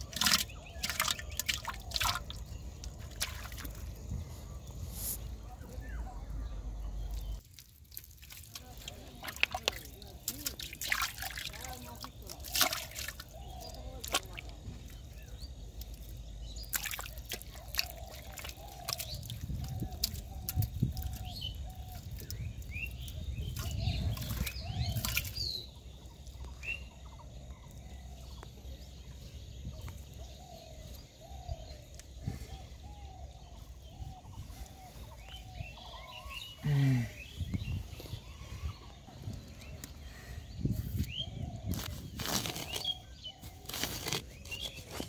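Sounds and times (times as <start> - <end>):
knocks and clicks in mud: 0.0 - 4.1, 7.0 - 26.6, 39.2 - 40.0
bird calling: 0.0 - 7.4, 8.6 - 45.0.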